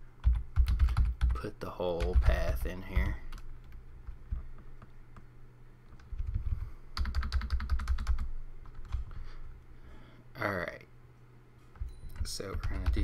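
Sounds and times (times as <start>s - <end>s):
faint low hum: 0.0s - 13.0s
keyboard typing: 0.2s - 5.3s, 5.9s - 9.2s, 11.7s - 13.0s.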